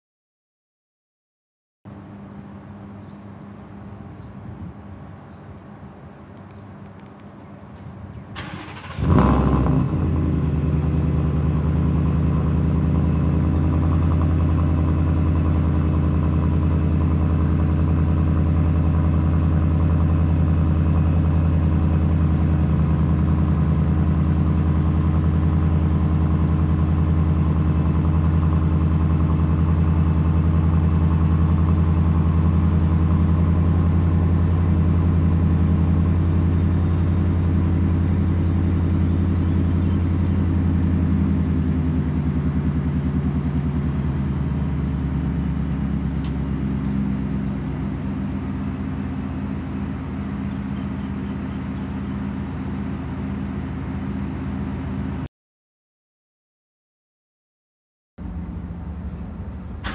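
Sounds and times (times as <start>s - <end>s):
engine starting and idling: 8.3s - 15.9s, 59.2s - 59.9s.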